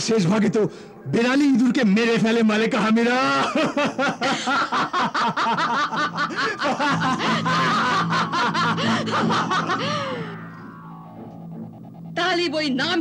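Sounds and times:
woman laughing: 3.4s - 10.7s
low music drone: 5.0s - 13.0s.

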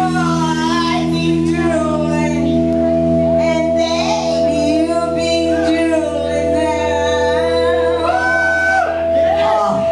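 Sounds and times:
rock band playing: 0.0s - 9.9s
person singing: 3.4s - 9.9s.

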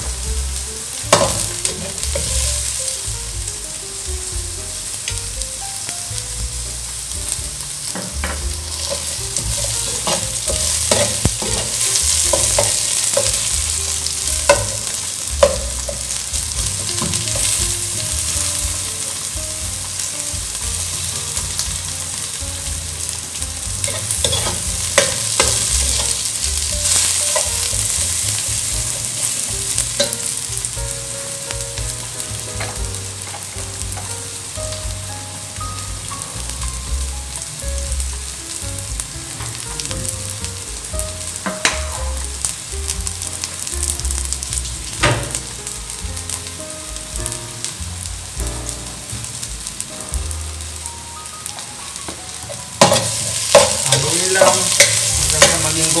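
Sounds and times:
garlic and onions sizzling in oil: 0.0s - 56.0s
metal spatula scraping pan: 23.8s - 26.2s.

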